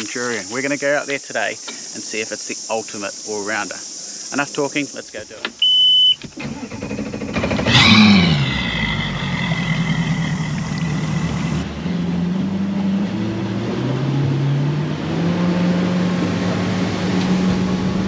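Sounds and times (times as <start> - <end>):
outboard motor humming: 6.3 - 18.0.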